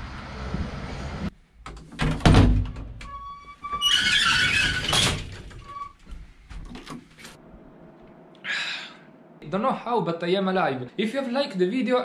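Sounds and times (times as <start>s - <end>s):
metal lift doors squealing: 2.8s - 6.0s
lift doors scraping: 2.8s - 6.1s.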